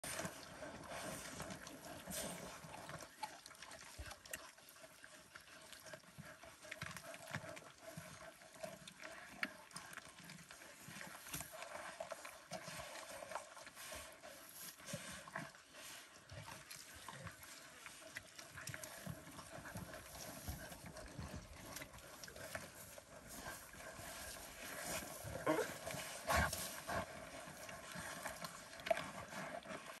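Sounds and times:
animals tearing and chewing meat: 16.4s - 30.0s.

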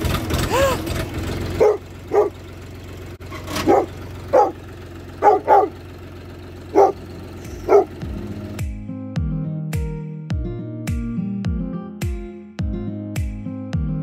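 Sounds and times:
dog barking: 1.6s - 2.4s, 3.6s - 4.6s, 5.2s - 5.8s, 6.7s - 7.0s, 7.6s - 8.0s.

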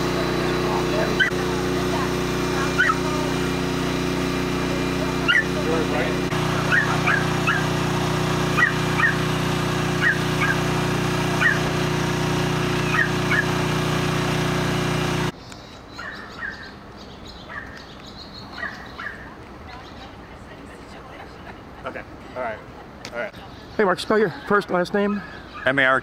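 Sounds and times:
mechanical hum: 0.0s - 15.4s
birds chirping: 0.0s - 26.0s.

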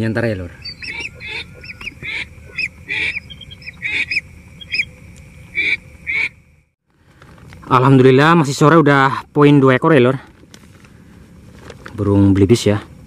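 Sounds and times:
ducks whistling calls: 0.5s - 6.4s.

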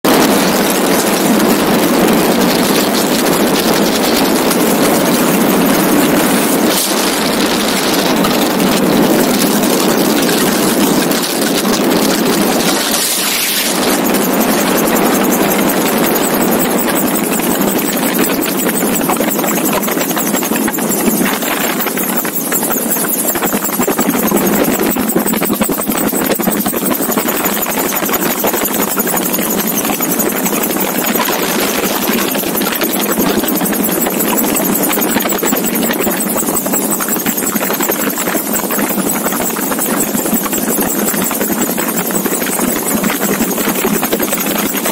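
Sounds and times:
aircraft engine: 0.0s - 44.9s
wind noise: 0.0s - 44.9s.

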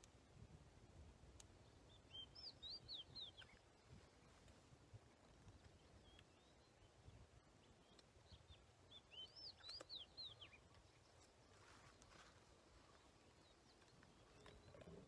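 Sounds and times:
bird whistling song: 1.9s - 3.6s, 7.8s - 10.6s.

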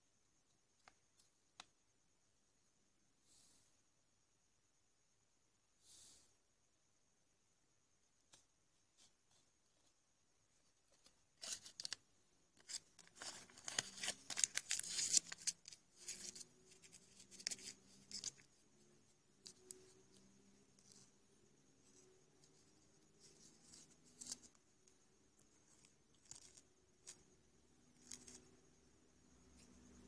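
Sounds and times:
paper crinkling and rustling: 12.6s - 18.4s.

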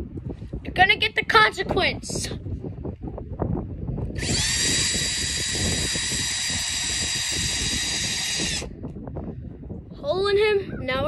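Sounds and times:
cordless drill whining: 4.2s - 8.7s.

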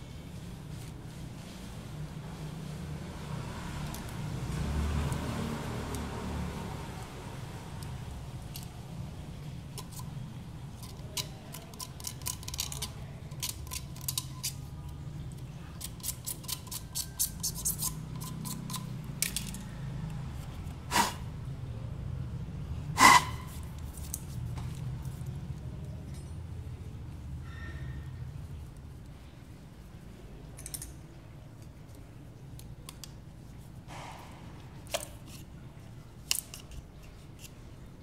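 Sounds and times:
scissors clacking on concrete floor: 10.8s - 15.0s, 15.8s - 20.2s, 30.6s - 31.0s.

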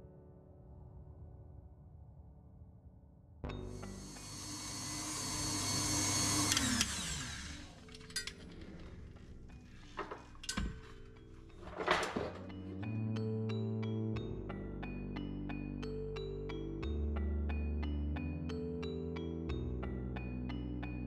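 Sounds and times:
stand mixer motor whisking: 3.8s - 8.3s
mixer handled with clatter: 9.8s - 12.6s.

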